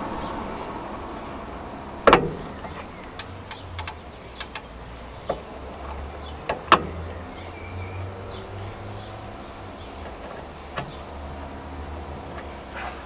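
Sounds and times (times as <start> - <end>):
sharp metal knocks: 2.0 - 5.5, 6.4 - 7.0
metal tools clinking on brake: 2.3 - 7.0.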